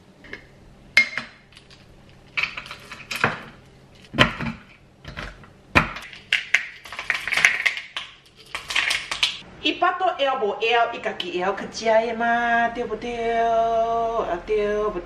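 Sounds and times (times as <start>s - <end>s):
chocolate pieces clattering into bowl: 6.0s - 9.4s.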